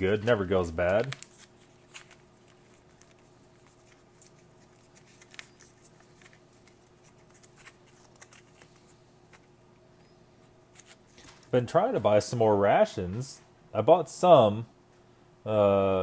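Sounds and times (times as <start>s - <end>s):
foil pouch crinkling: 0.0s - 9.5s
faint steady hum: 0.0s - 16.0s.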